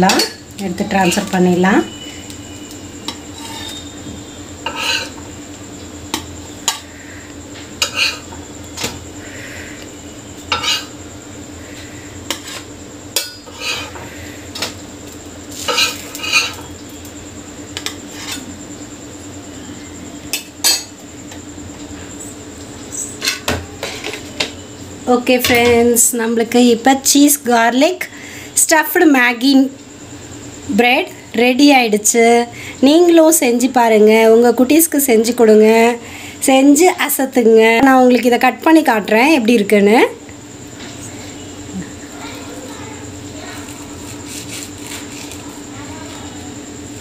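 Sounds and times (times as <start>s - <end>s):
spatula scraping metal pan: 3.0s - 4.0s, 4.6s - 5.2s, 7.8s - 8.3s, 10.5s - 11.0s, 12.3s - 14.2s, 15.5s - 16.7s, 17.8s - 18.5s.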